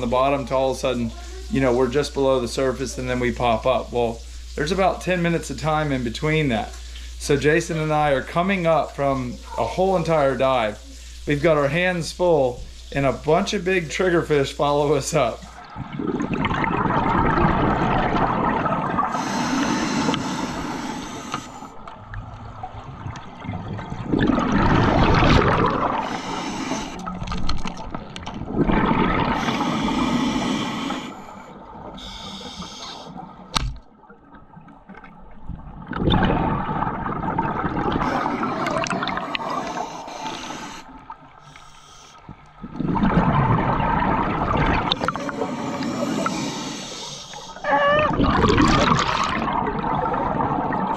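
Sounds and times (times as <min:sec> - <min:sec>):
exhaled bubbles gurgling underwater: 0:12.6 - 0:41.6, 0:42.2 - 0:50.9.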